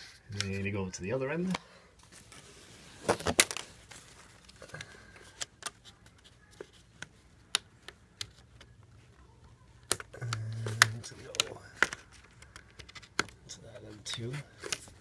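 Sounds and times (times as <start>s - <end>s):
hard plastic clicks and taps: 9.8s - 13.4s.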